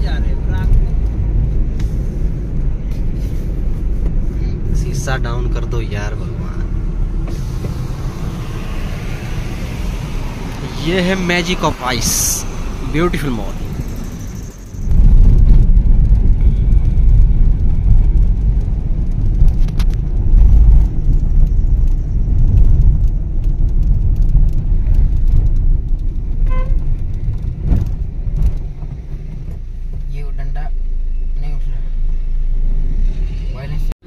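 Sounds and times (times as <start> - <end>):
car road and wind rumble: 0.0 - 34.0
car horn toot: 26.4 - 26.9.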